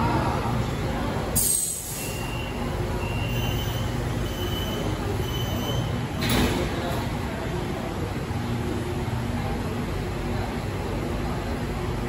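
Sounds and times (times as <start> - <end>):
door-closing warning beeps: 2.0 - 6.5.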